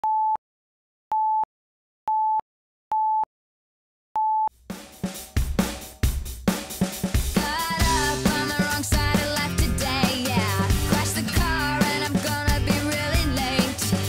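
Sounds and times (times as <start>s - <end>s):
music with drum kit: 4.6s - 14.0s.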